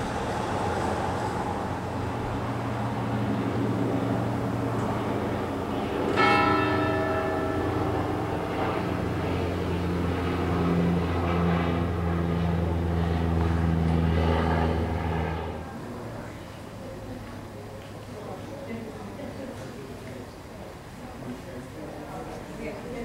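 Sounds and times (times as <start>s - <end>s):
steady low drone: 0.0s - 16.4s
church bells ringing: 4.2s - 12.5s.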